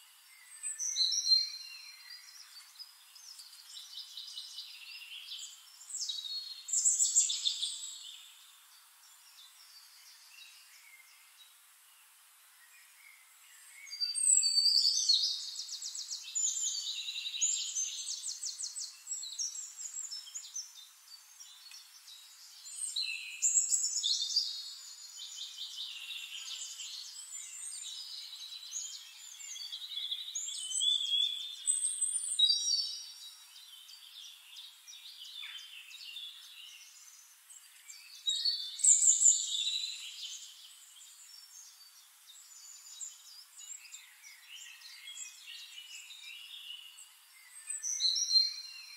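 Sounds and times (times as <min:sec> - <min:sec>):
songbirds singing: 0:00.0 - 0:48.9.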